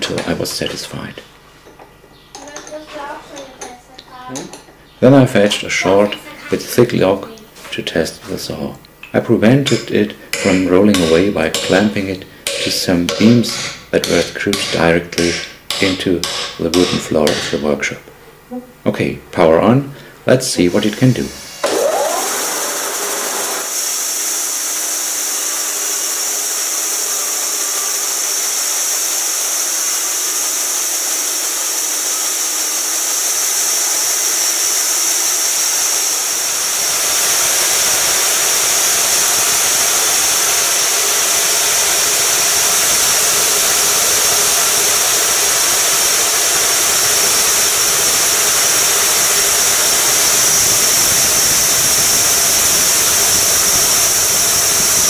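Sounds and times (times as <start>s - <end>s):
band sawmill cutting log: 9.4s - 17.8s, 20.8s - 55.0s.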